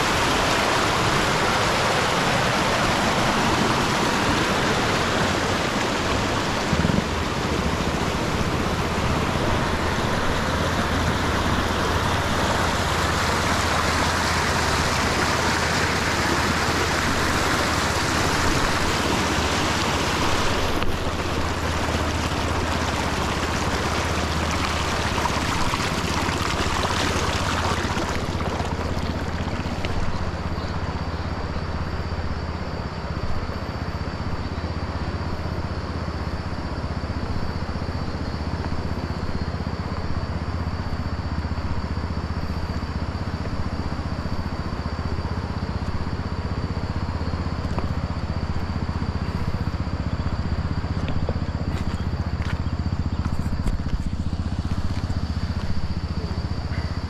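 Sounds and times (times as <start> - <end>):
river rushing over rocks: 0.0 - 30.6
low steady rumble: 0.0 - 57.0.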